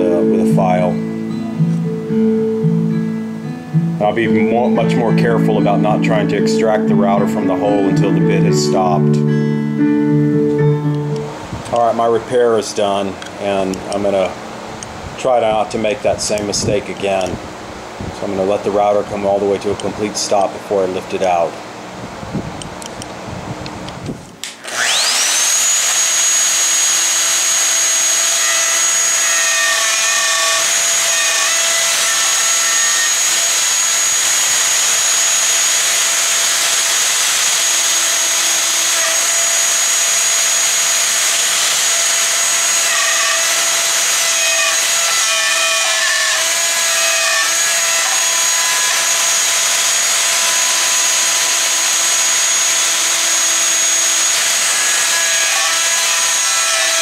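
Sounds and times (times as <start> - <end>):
router whining while cutting wood: 0.0 - 1.9, 24.4 - 57.0.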